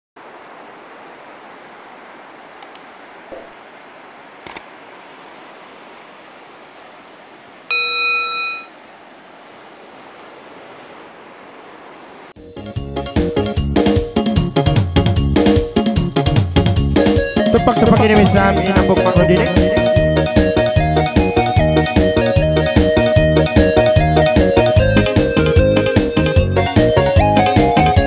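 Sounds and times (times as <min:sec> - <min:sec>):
ocean surf hissing: 0:00.2 - 0:12.4, 0:17.2 - 0:20.8
bright bell chime: 0:07.7 - 0:08.7.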